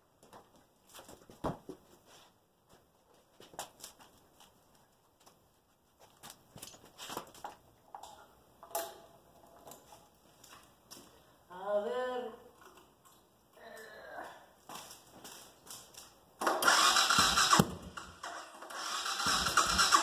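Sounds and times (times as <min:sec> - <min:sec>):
footsteps: 0:00.0 - 0:07.7, 0:14.6 - 0:16.2.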